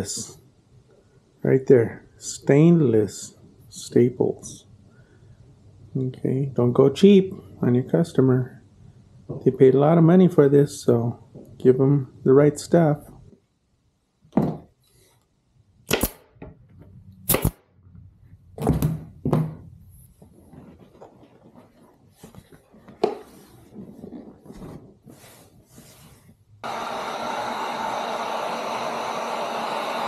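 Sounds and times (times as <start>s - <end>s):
staple gun firing: 15.9s - 16.2s, 17.3s - 17.6s
vinyl rustling: 19.8s - 26.6s
heat gun blowing hiss: 26.6s - 30.0s.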